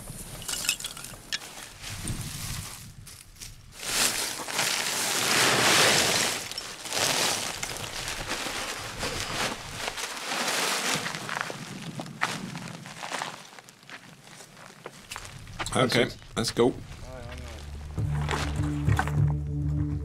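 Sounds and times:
charcoal filling a woven sack: 3.7s - 15.4s.

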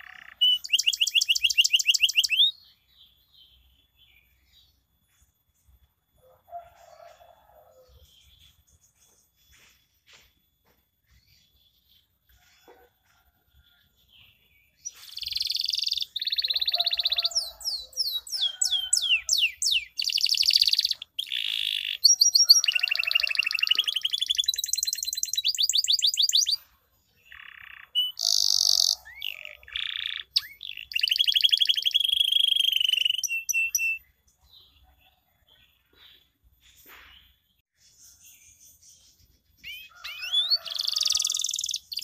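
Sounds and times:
canary singing: 0.0s - 2.8s, 14.8s - 26.6s, 27.2s - 34.1s, 39.6s - 42.0s.

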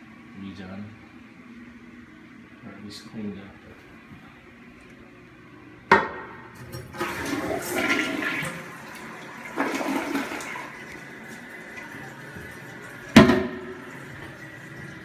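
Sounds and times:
toilet flushing: 6.5s - 15.0s.

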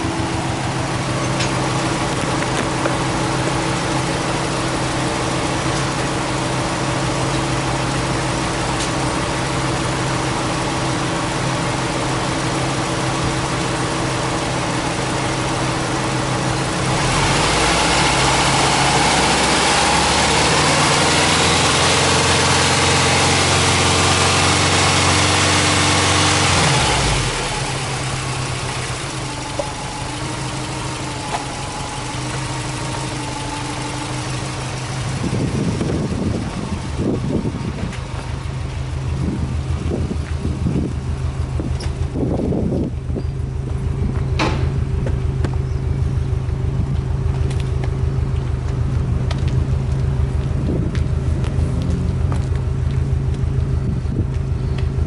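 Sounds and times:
car engine idling and revving: 0.0s - 55.0s.

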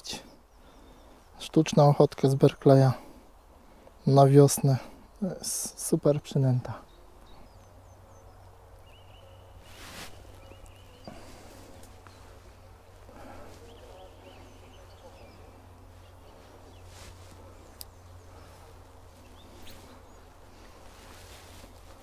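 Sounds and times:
small birds chirping: 0.0s - 22.0s
rustling: 9.6s - 22.0s.

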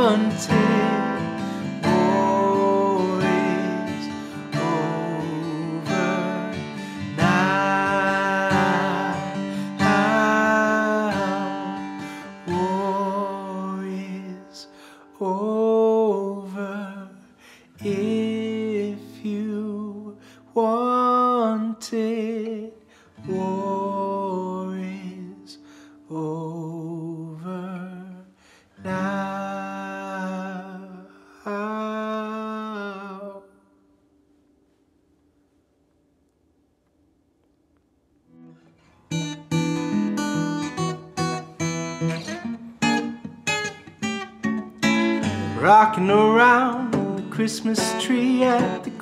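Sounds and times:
slow melody with vibrato: 0.0s - 14.4s
guitar accompaniment: 0.0s - 33.4s, 38.3s - 49.0s.

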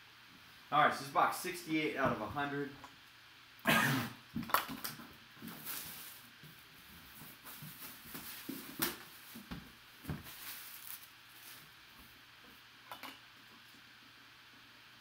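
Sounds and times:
cardboard scraping and rustling: 7.1s - 11.7s.

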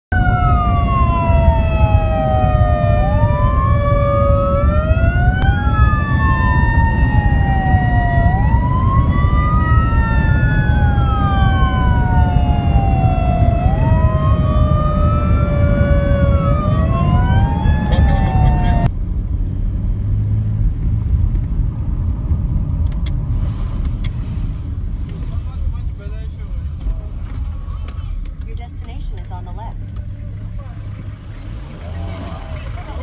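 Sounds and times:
emergency sirens wailing: 0.1s - 18.9s
engine and road rumble: 0.1s - 33.0s.

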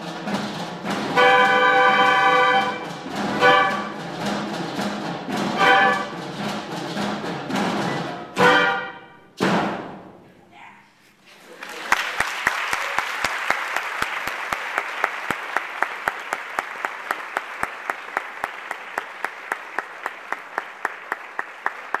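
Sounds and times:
audience applause: 11.3s - 22.0s
person clapping close to microphone: 11.6s - 22.0s.

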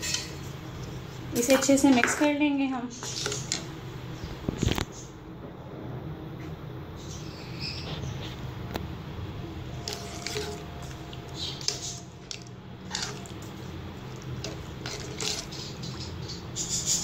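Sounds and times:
wet squelches of stirring: 0.0s - 5.1s, 9.6s - 17.0s
spoon scraping pan: 2.9s - 3.7s, 9.7s - 17.0s.

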